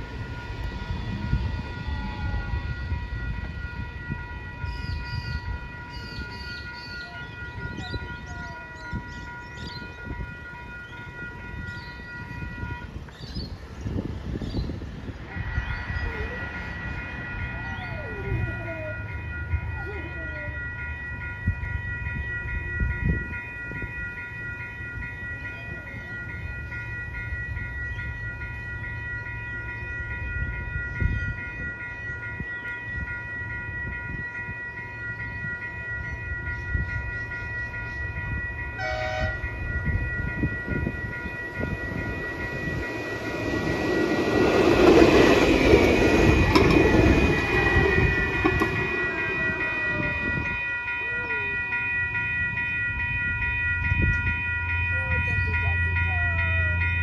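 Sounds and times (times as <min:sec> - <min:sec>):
tram horn blast: 0:00.0 - 0:13.3, 0:38.7 - 0:50.9
level crossing warning bells: 0:00.0 - 0:57.0
tram running noise: 0:00.0 - 0:57.0.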